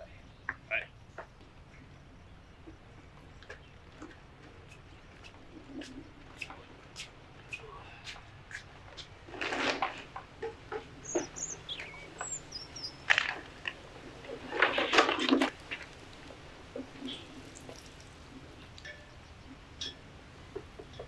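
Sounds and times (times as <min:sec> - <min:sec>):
birds chirping: 0:00.0 - 0:21.0
bags rustling and clunking: 0:09.0 - 0:12.4.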